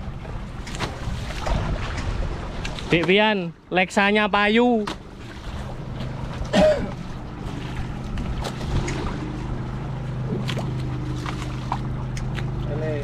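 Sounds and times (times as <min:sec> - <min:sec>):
boat engine humming: 0:00.0 - 0:13.0.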